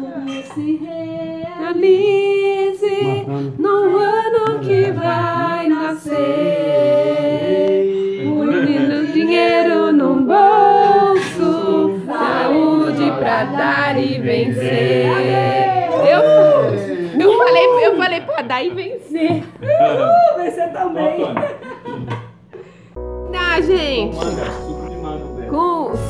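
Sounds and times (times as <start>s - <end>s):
group singing without instruments: 0.0s - 16.7s.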